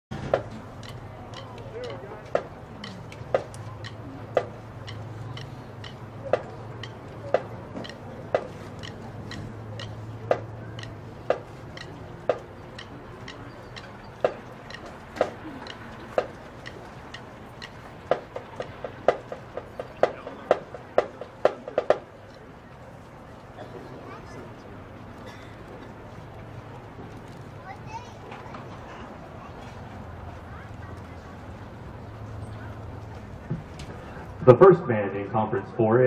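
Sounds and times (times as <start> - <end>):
sharp percussion clicks: 0.3 - 22.4.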